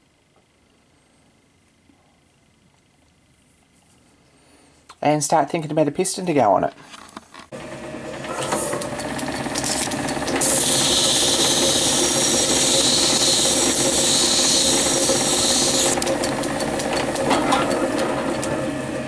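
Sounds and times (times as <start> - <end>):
metal lathe running: 7.5 - 19.0
polishing stick rubbing on rod: 10.4 - 16.0.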